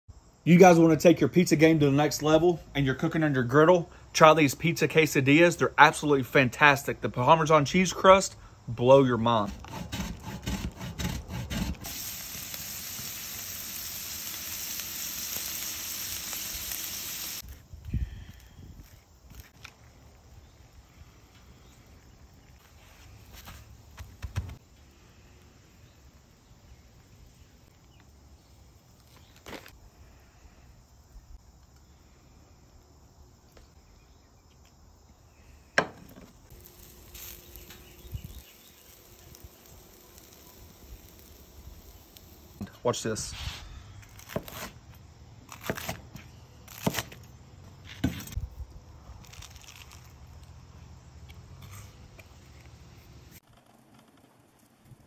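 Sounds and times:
cheese grating on metal grater: 9.4 - 11.9
food sizzling on griddle: 11.6 - 17.6, 36.5 - 43.5
faint insect chirring: 11.9 - 45.6.

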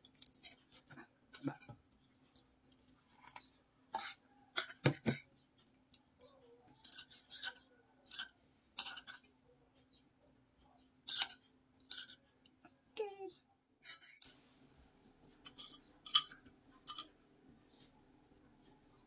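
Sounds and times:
utensils clinking against metal pot: 5.9 - 9.3, 11.0 - 12.3, 15.4 - 17.1.

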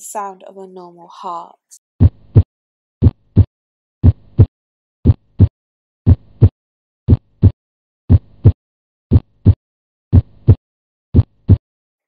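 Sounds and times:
heartbeat lub-dub: 2.0 - 5.5, 6.1 - 6.5, 7.1 - 11.6.

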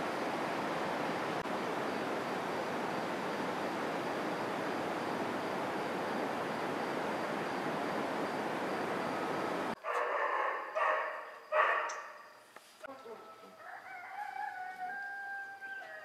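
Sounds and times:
steady rushing noise: 0.0 - 9.8.

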